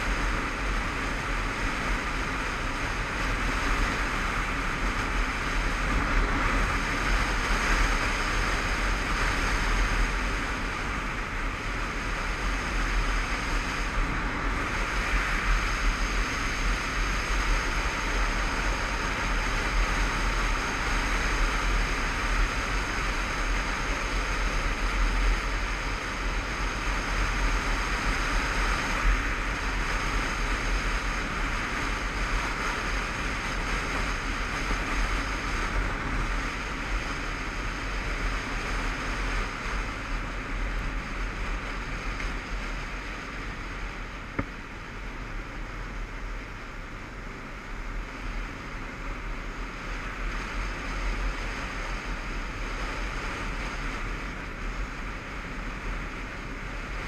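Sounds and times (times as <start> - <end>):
road noise: 0.0 - 57.0
wind rushing over microphone: 0.0 - 57.0.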